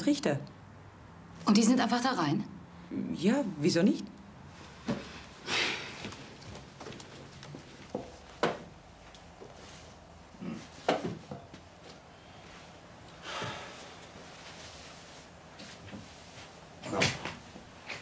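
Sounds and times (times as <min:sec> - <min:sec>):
soft rustling: 0:04.5 - 0:16.8.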